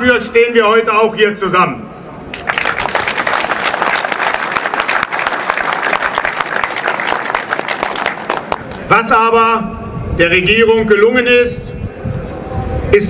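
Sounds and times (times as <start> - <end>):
crowd applauding: 2.3 - 8.9.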